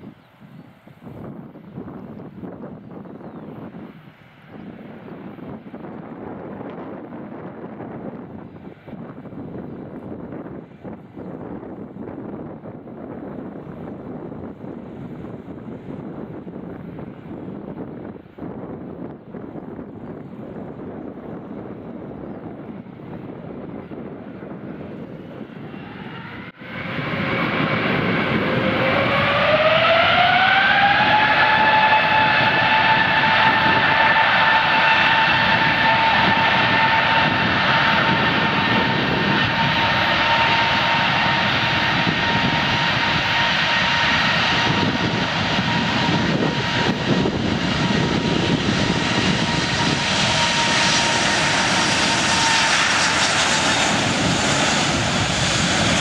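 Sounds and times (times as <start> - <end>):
jet engines whining: 0.0 - 56.0
jet noise rushing: 25.6 - 56.0.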